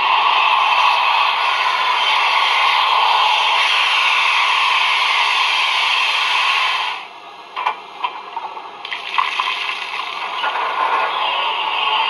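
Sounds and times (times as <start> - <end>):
steam hiss: 0.0 - 7.1.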